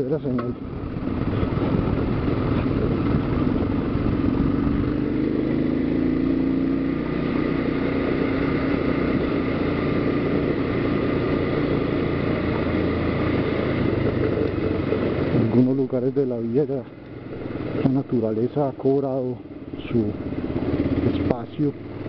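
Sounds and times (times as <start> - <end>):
motorcycle engine running: 0.0 - 22.0.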